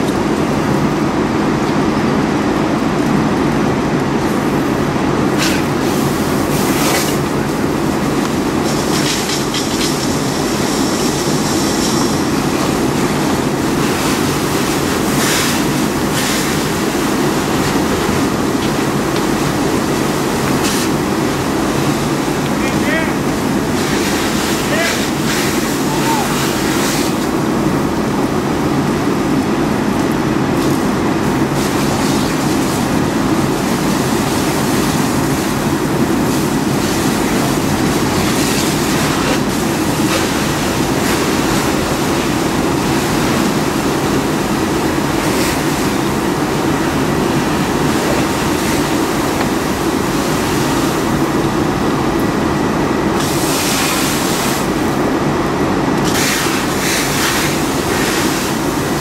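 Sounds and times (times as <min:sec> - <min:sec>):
fire burning: 0:00.0 - 0:59.0
fire hose water spraying: 0:00.0 - 0:59.0
steam hissing: 0:05.4 - 0:27.4, 0:53.2 - 0:54.9, 0:56.0 - 0:59.0.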